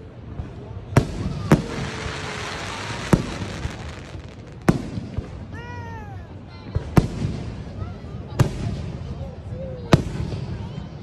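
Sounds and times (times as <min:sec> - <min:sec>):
crackle of sparks: 0:01.0 - 0:04.9
fireworks shells bursting: 0:01.4 - 0:05.0.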